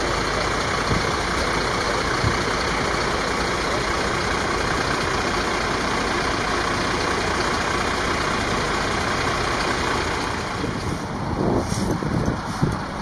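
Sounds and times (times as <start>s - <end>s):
vehicle engine idling: 0.0s - 13.0s.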